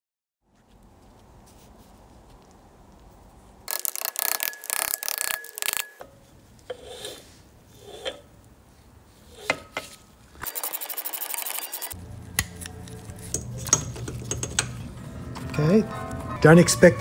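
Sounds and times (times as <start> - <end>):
piston scraping in cylinder: 6.6 - 8.3.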